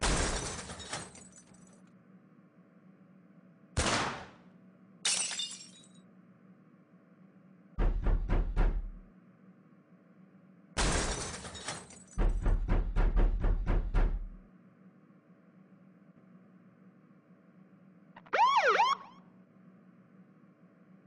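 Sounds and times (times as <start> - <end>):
faint steady hum: 0.0 - 3.8, 4.4 - 7.9, 8.8 - 11.3, 14.3 - 21.0
glass smashing: 5.1 - 6.0
deep thud: 7.8 - 9.0.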